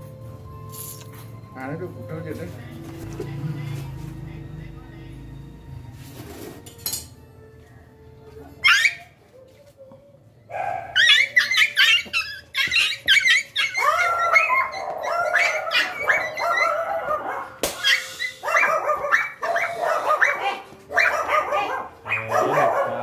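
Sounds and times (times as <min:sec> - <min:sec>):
dog yelping and whining: 0:08.6 - 0:09.2, 0:10.5 - 0:23.0.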